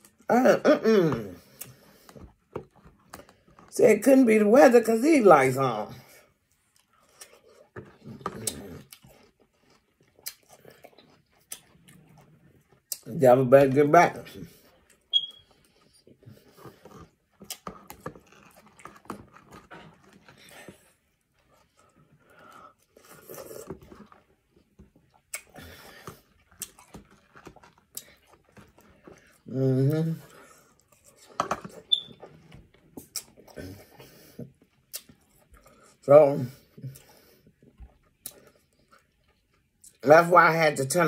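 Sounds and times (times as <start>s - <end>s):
person chewing watermelon: 0.0s - 3.8s, 5.7s - 40.2s
mouth clicks and smacks: 8.3s - 11.9s, 25.2s - 25.6s, 33.0s - 33.6s, 34.8s - 35.7s.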